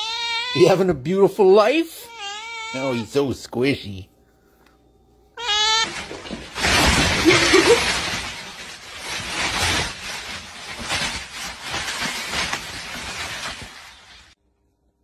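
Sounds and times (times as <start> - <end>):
plastic bag crinkling: 5.4 - 14.4.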